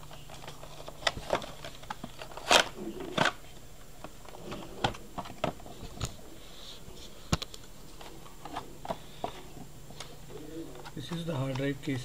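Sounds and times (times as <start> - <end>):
plastic packaging clicks and crackles: 0.0 - 6.2, 10.8 - 12.0.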